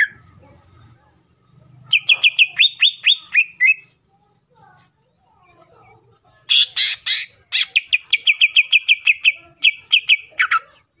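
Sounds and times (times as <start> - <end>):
harsh raspy bird calls: 0.0 - 3.9, 6.4 - 11.0
bird singing: 0.0 - 11.0.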